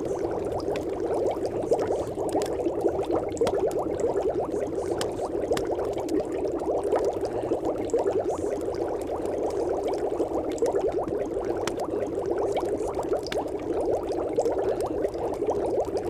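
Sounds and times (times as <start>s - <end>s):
water bubbling and gurgling: 0.0s - 16.0s
faint clicks: 13.2s - 13.5s.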